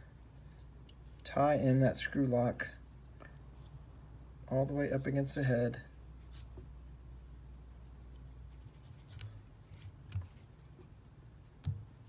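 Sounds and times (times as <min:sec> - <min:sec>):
thread wrapping handling sounds: 0:06.0 - 0:12.0.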